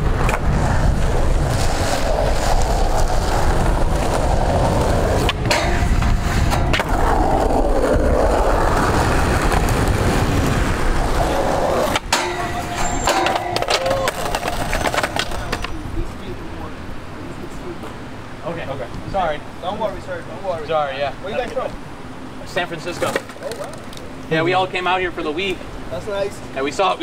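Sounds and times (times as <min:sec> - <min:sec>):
skateboard trucks grinding on metal: 0:00.0 - 0:15.8
skateboard clacking on ground: 0:00.0 - 0:15.9, 0:22.9 - 0:24.1
skateboard wheels rolling on concrete: 0:00.0 - 0:27.0.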